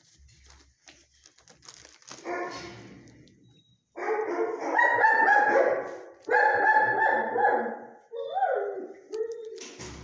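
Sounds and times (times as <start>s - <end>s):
dogs barking: 4.0s - 9.4s.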